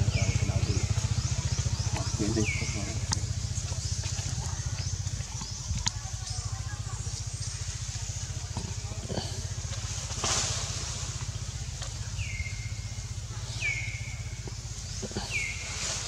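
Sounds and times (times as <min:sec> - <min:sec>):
high whistled calls: 0:00.0 - 0:06.6, 0:12.2 - 0:15.9
low engine throb: 0:00.0 - 0:16.0.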